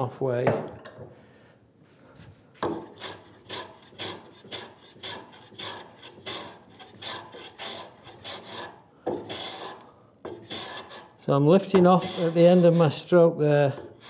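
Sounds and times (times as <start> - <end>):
hand plane scraping wood: 2.6 - 13.1.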